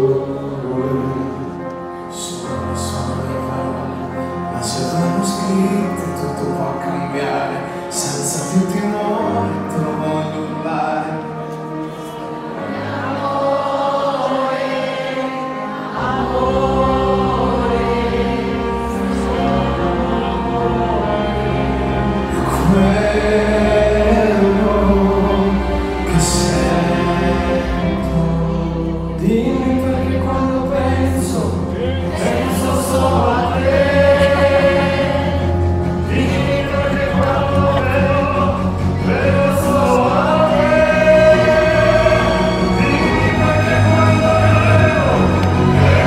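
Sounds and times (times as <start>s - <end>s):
vocal trio singing: 11.8s - 46.0s.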